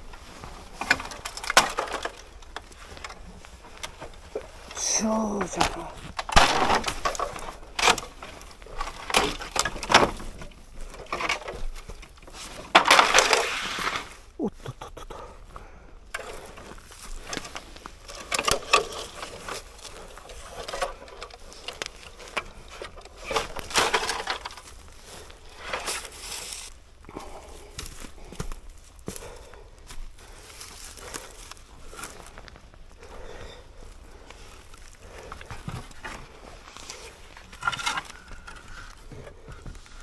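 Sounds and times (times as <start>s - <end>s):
bamboo and brush rustling: 0.0s - 40.0s.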